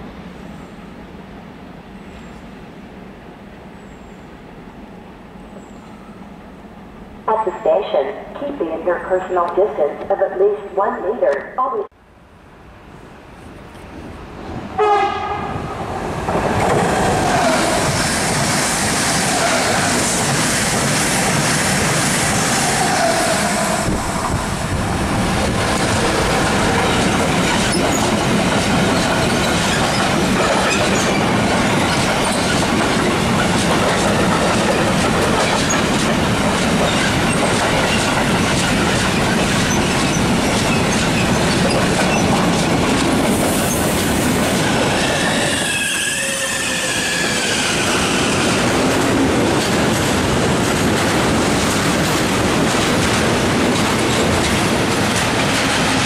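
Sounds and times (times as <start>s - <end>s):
train wheels on rail clickety-clack: 13.7s - 56.0s
high wheel squeals: 44.9s - 48.4s.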